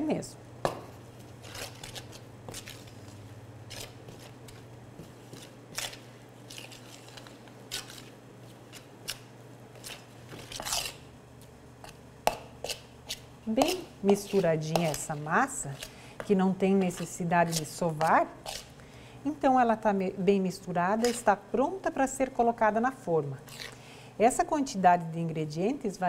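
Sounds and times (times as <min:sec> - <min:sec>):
spoon scraping steel bowl: 0:09.8 - 0:11.0, 0:12.6 - 0:18.7.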